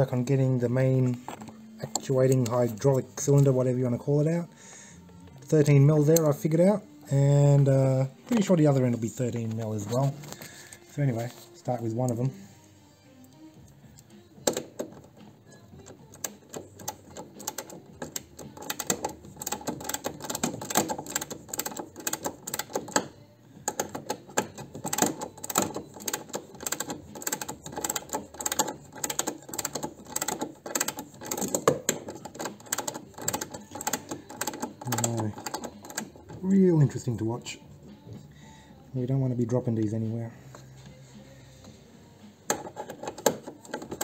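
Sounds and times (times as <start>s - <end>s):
ratchet wrench clicking: 23.7s - 36.2s.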